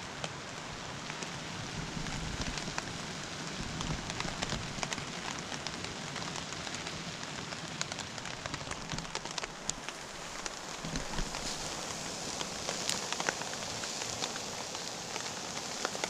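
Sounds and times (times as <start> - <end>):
steak sizzling in a pan: 9.0 - 16.0.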